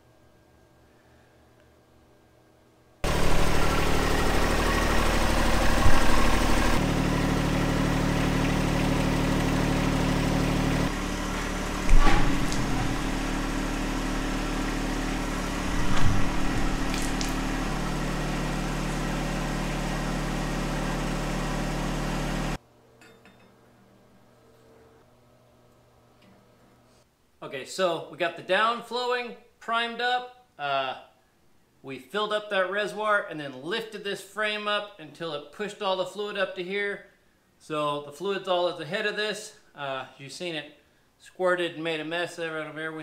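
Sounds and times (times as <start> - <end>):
hydraulic pump motor running: 3.0 - 22.6
metal clunks: 11.8 - 13.4.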